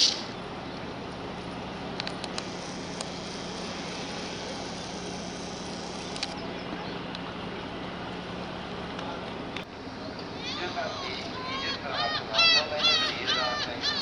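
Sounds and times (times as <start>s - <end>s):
low machinery hum: 0.0s - 14.0s.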